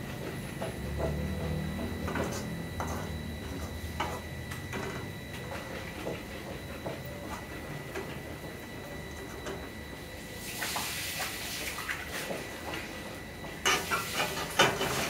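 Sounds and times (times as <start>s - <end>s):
meat sizzling in a wok: 13.7s - 15.0s.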